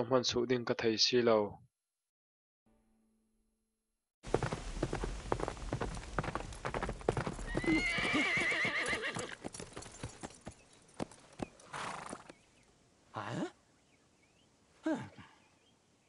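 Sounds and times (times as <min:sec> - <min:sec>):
horse hoofbeats galloping: 0:04.3 - 0:12.4
horse whinnying: 0:07.4 - 0:09.4, 0:11.7 - 0:12.3.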